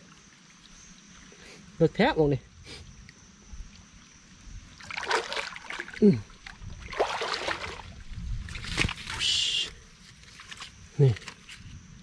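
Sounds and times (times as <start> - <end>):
rustling through wet undergrowth: 3.2 - 12.0.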